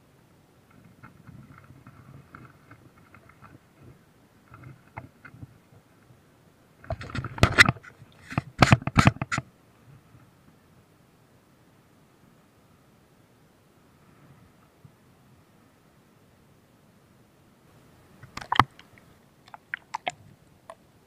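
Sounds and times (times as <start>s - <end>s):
water splashing: 18.2s - 20.8s.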